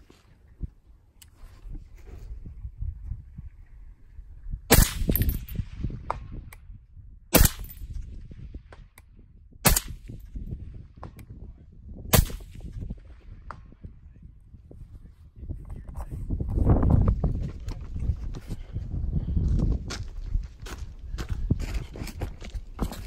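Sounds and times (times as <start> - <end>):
suppressed rifle shots: 4.7 - 5.7, 7.3 - 8.1, 9.6 - 10.2, 12.1 - 12.8.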